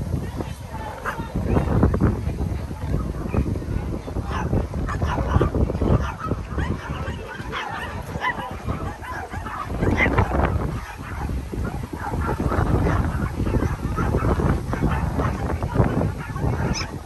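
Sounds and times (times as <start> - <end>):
small dogs yipping and barking: 4.3 - 17.0.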